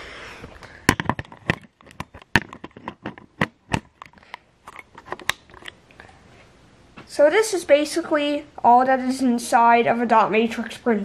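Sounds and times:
camera handling clicks and knocks: 0:00.9 - 0:05.8.

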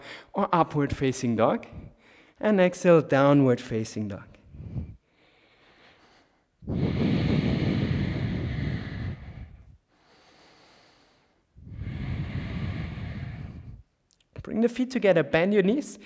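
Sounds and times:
man breathing deeply: 0:00.0 - 0:00.4, 0:01.7 - 0:02.4, 0:04.4 - 0:14.0.

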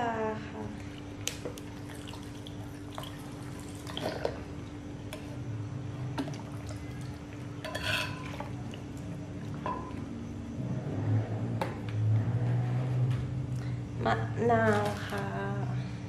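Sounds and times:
sauce trickling and dripping: 0:01.2 - 0:04.5.

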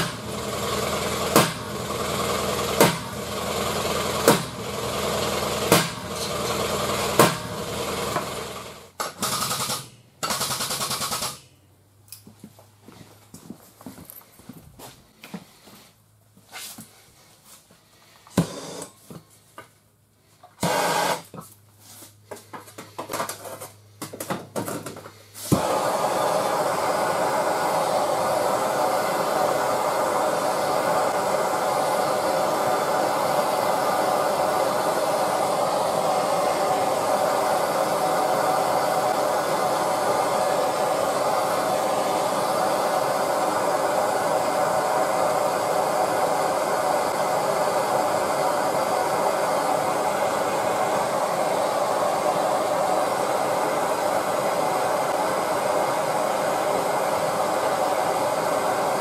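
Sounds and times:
hand torch flame burning: 0:00.0 - 0:09.0, 0:25.4 - 0:59.0.

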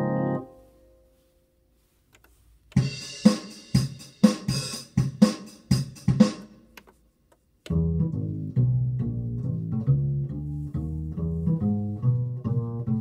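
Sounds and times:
drum beat with hi-hat and cymbal: 0:02.7 - 0:06.6.

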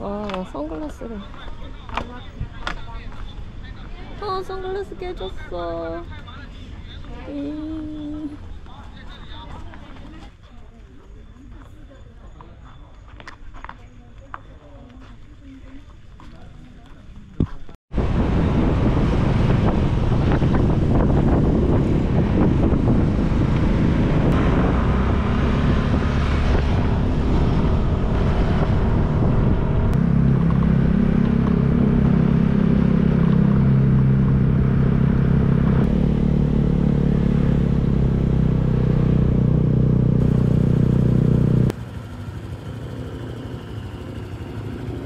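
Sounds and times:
road and wind noise: 0:00.0 - 0:45.0
motor scooter engine: 0:18.6 - 0:45.0.

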